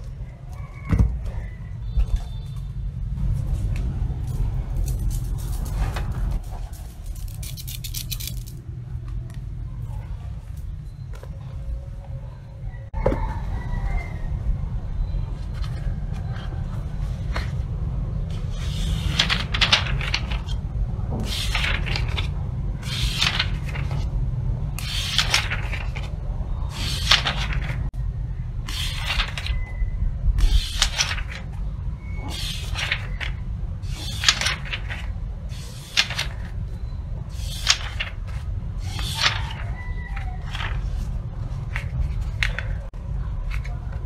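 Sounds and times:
book pages turning: 15.3 - 24.2, 24.8 - 27.9, 28.6 - 29.6, 30.4 - 31.6, 32.2 - 44.0.

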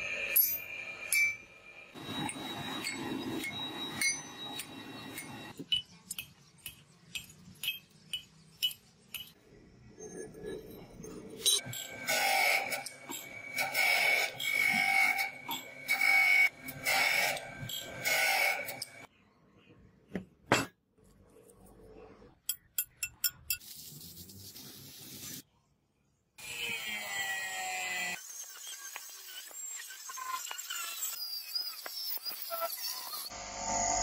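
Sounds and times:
grinder high whine: 0.0 - 5.6, 27.8 - 34.0
angle grinder cutting steel: 11.5 - 19.1.

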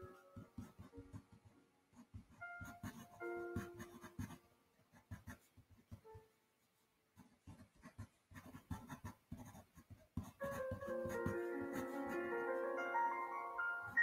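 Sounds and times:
background music sustained notes: 0.0 - 4.7, 10.4 - 14.0
pen nib scratching on paper: 0.0 - 6.3, 7.1 - 12.6.

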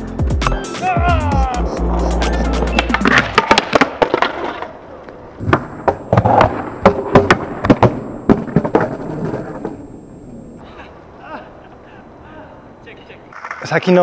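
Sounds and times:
skateboard clattering on bricks: 2.8 - 9.8.

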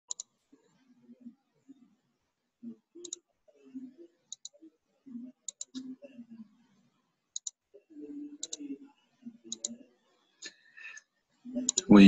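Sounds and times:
computer mouse clicking: 0.1 - 0.3, 4.3 - 4.5, 5.5 - 5.8, 7.4 - 7.6, 8.4 - 8.6, 9.5 - 9.8, 11.6 - 11.9.

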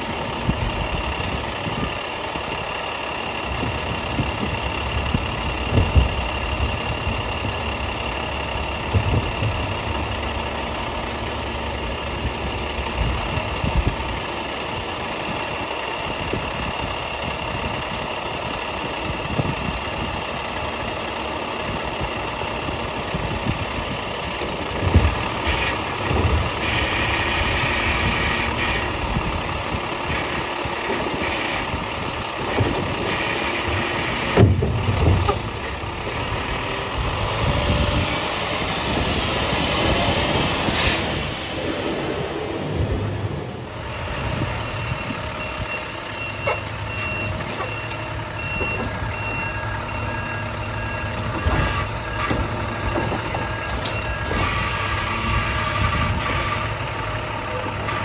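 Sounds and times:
diesel engine idling: 0.0 - 58.0
hydraulic arm working: 22.9 - 58.0
knocks and thumps: 24.4 - 25.2, 34.3 - 35.5.

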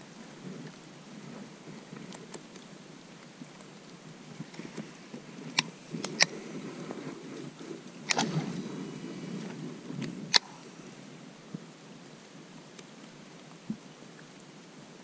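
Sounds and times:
camera handling rustle: 4.4 - 10.8.

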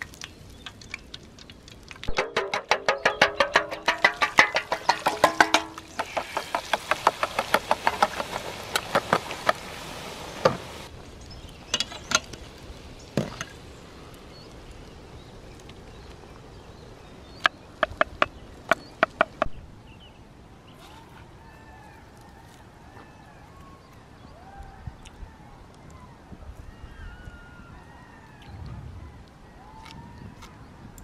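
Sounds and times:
egg sizzling in hot fat: 0.0 - 15.9.

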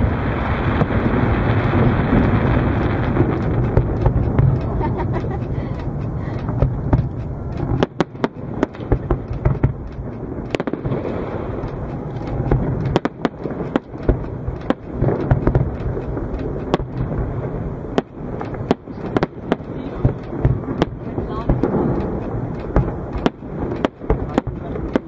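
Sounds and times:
firework bangs: 0.0 - 25.0
low rumble: 0.0 - 25.0.

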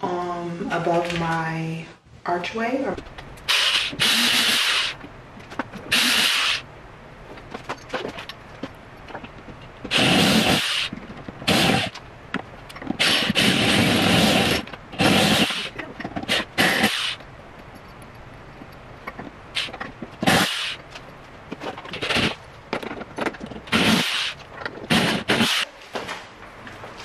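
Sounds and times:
power drill bursts: 3.5 - 5.0, 5.9 - 6.6, 9.9 - 10.9, 13.0 - 15.7, 16.3 - 17.2, 23.7 - 25.7.

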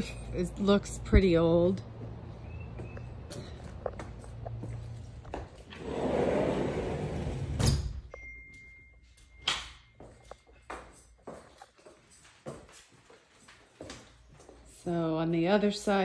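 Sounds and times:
sliding door rolling on track: 5.6 - 7.9.

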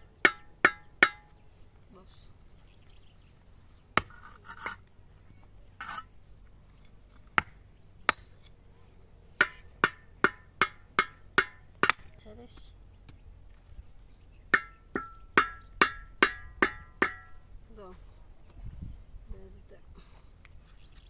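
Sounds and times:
sharp ringing knocks: 0.0 - 1.4, 9.4 - 12.0, 14.5 - 17.4
short scraping noises: 4.1 - 4.8.

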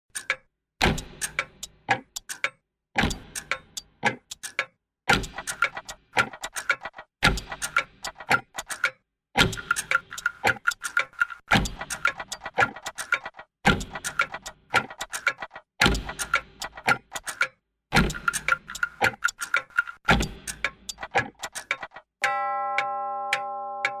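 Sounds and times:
clockwork ticking and ratcheting: 0.1 - 24.0.

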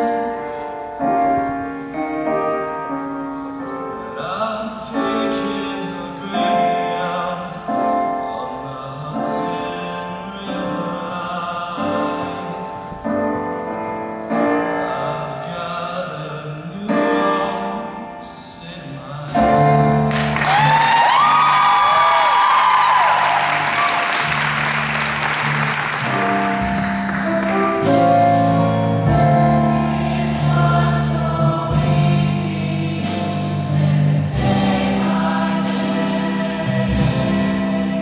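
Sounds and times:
piano accompaniment: 0.0 - 38.0
man singing a slow ballad: 3.9 - 13.3, 14.6 - 20.1.

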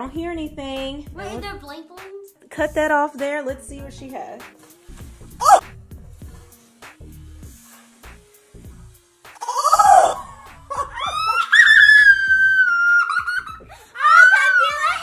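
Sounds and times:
foam squirting hiss: 4.4 - 13.8
girls shrieking and laughing: 9.5 - 15.0.

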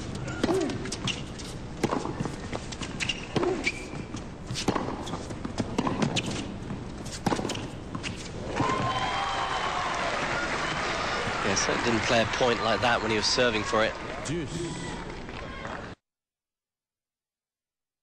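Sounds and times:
rackets striking tennis ball: 0.0 - 8.9.

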